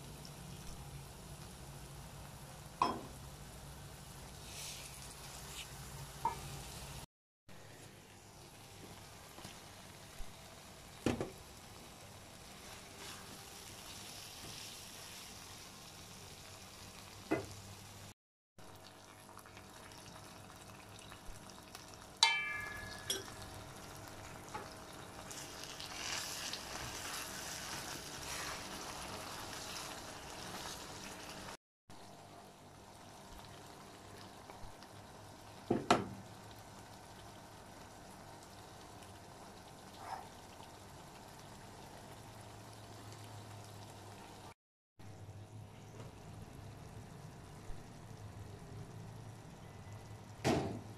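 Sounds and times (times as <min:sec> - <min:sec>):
spice paste sizzling in a wok: 0:00.0 - 0:07.0, 0:07.6 - 0:44.5
ringing metal clink: 0:22.2 - 0:23.4.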